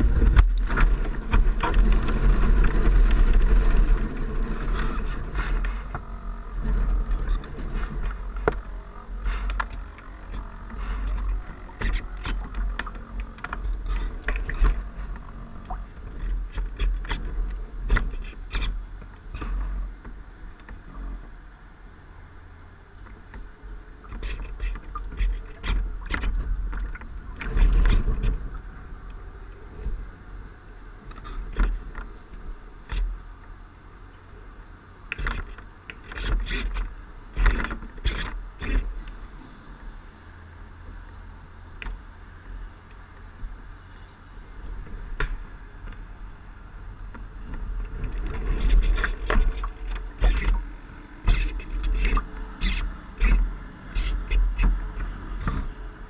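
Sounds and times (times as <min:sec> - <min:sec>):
low rumble: 0:00.0 - 0:35.8
water splashing against hull: 0:00.0 - 0:56.0.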